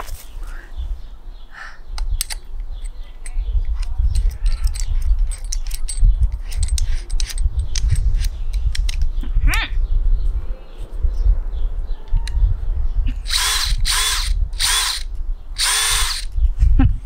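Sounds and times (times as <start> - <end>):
drill chuck metallic clicks: 13.3 - 16.4.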